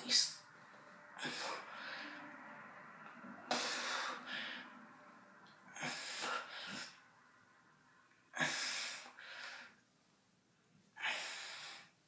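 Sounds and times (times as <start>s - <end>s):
heavy forceful breathing: 0.5s - 2.6s, 3.4s - 7.3s, 8.3s - 9.9s, 11.0s - 12.0s.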